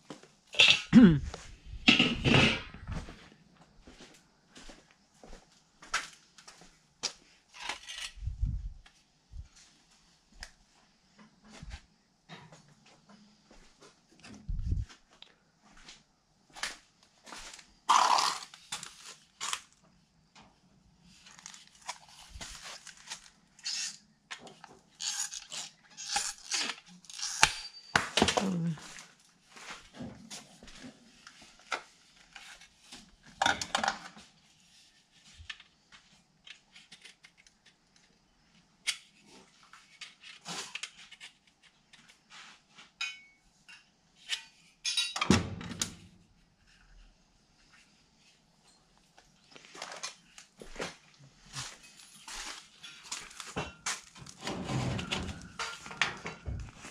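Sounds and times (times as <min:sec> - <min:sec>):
thin metal clanks and rattles: 0:44.4 - 0:45.5, 0:52.7 - 0:56.9.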